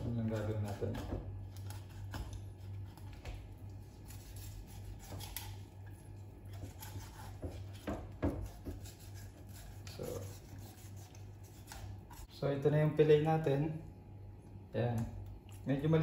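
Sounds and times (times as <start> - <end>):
knife slicing along fish bone: 0.0 - 12.3
knife knocking on cutting board: 7.4 - 8.8.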